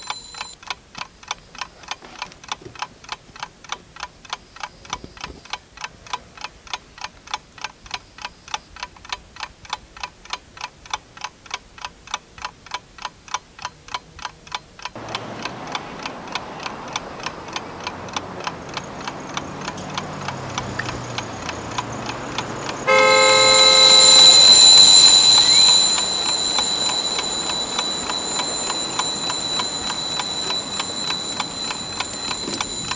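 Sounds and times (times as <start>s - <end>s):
clock ticking: 2.5s - 32.9s
road traffic noise: 15.0s - 32.9s
loud horn blast: 22.2s - 27.0s.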